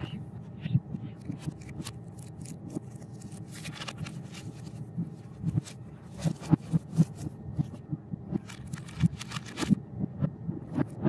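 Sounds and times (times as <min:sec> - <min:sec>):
paper and plastic rustling: 0:01.2 - 0:07.3, 0:08.4 - 0:09.8.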